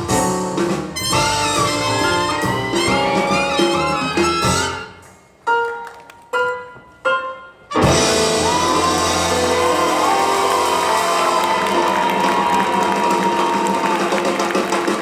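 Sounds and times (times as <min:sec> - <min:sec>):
swing jazz band with horns: 0:00.0 - 0:05.3, 0:07.6 - 0:15.0
crowd applauding and cheering: 0:08.0 - 0:15.0.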